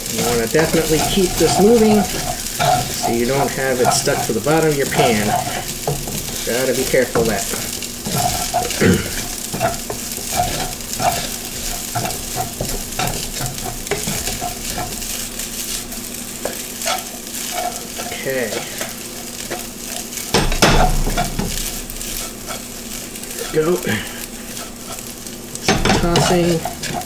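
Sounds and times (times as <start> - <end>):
pan knocking and rattling: 0.0 - 15.0
rice sizzling in hot oil: 0.0 - 27.0
wooden spatula scraping a wok: 0.0 - 27.0.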